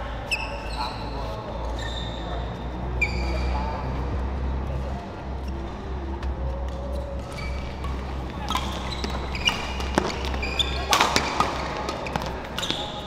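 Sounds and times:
sneakers squeaking on floor: 0:00.1 - 0:13.0
low hum: 0:01.1 - 0:12.6
racket striking shuttlecock: 0:06.2 - 0:13.0.

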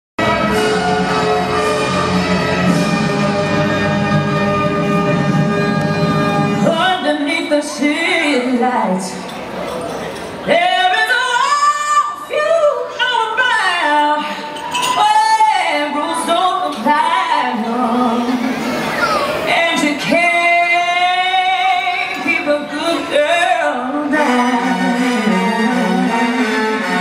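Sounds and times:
high solo singing voice: 0:10.5 - 0:27.0.

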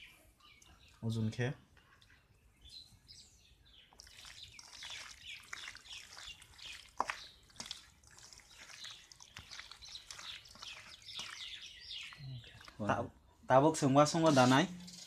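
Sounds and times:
hand kneading wet chicken: 0:03.8 - 0:13.0.

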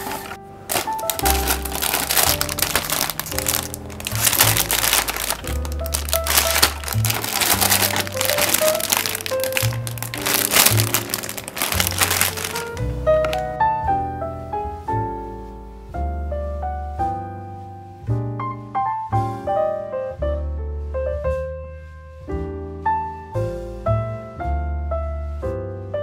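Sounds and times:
plastic bags crinkling: 0:00.0 - 0:13.4
background music with bass and keyboard: 0:00.0 - 0:26.0.

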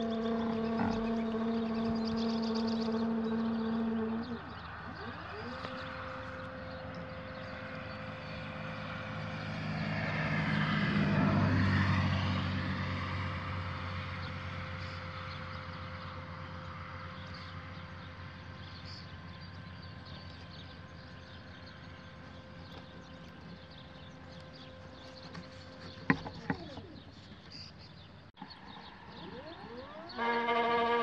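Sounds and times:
motor whining: 0:00.0 - 0:09.5, 0:21.6 - 0:27.7, 0:28.4 - 0:31.0
propeller airplane passing: 0:00.0 - 0:31.0.

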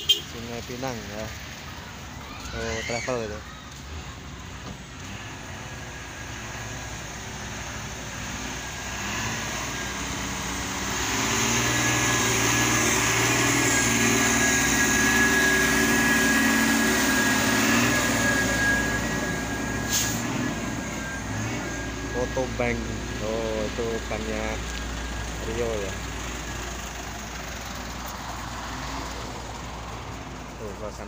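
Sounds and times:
diesel truck engine passing: 0:00.0 - 0:31.0
steady high whine: 0:12.8 - 0:26.0.

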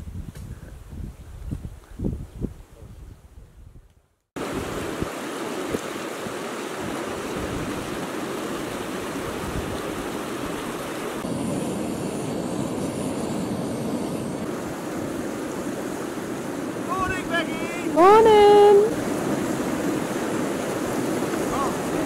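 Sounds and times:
stream rushing over rocks: 0:04.4 - 0:11.3, 0:14.4 - 0:22.0.

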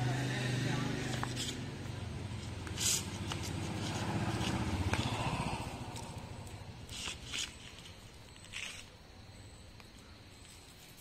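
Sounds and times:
vehicle engine running: 0:00.0 - 0:07.0
short scraping sounds: 0:02.4 - 0:04.6.

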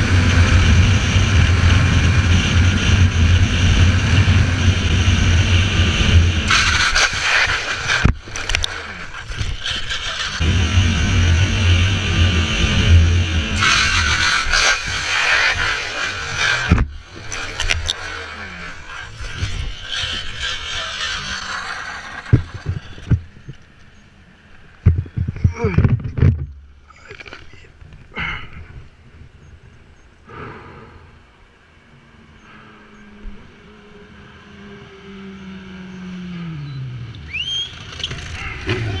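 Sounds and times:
passing car engine: 0:00.0 - 0:23.1, 0:31.8 - 0:39.0
sliding along asphalt: 0:00.0 - 0:39.0
camera knocks and thumps: 0:24.8 - 0:26.7.

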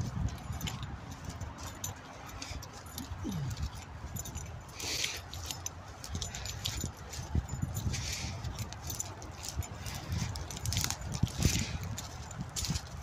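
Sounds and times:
footsteps rustling through grass: 0:00.0 - 0:13.0
wind rumble on microphone: 0:00.0 - 0:13.0.

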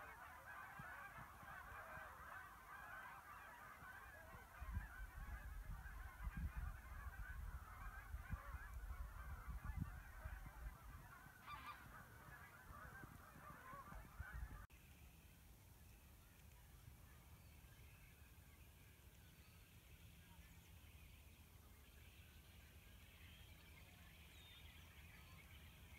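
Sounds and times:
geese honking: 0:00.0 - 0:14.7
wind rumbling on microphone: 0:04.2 - 0:14.7
faint high bird calls: 0:11.2 - 0:15.2.

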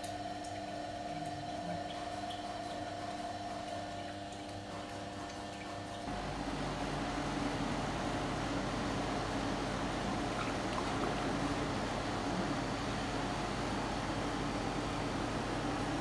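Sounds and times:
slush machine humming: 0:06.0 - 0:16.0.

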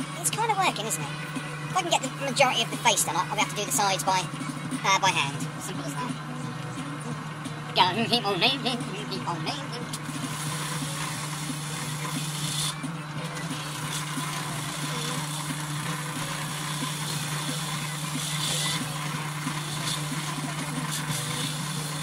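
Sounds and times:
power tool with abrasive disc: 0:07.0 - 0:22.0.

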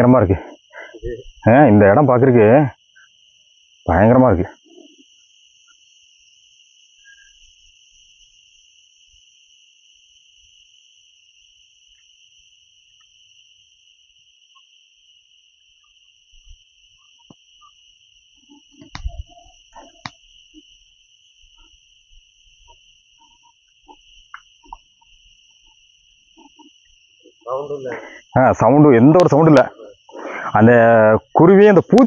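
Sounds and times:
insect high-pitched drone: 0:00.0 - 0:32.0
knocks and thumps: 0:18.7 - 0:20.2.

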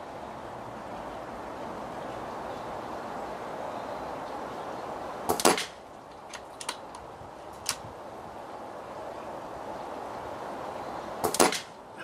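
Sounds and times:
air rifle shot crack: 0:05.3 - 0:05.8, 0:11.2 - 0:11.8.

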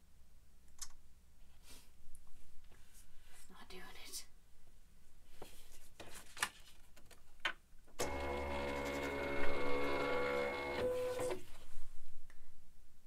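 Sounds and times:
cutting machine motor whine: 0:08.0 - 0:11.4.

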